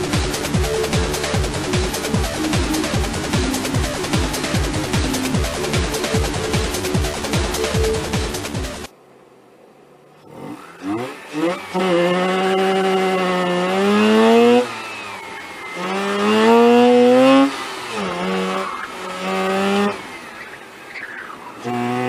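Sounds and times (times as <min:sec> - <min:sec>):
rotary engine revving hard: 0:10.2 - 0:22.0.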